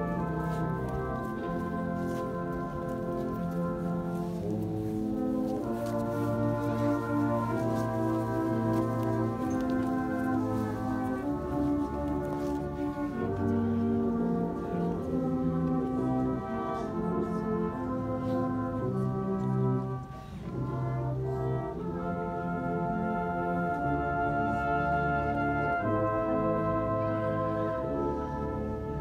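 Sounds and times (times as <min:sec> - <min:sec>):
brass band playing slow chords: 0:00.0 - 0:29.0.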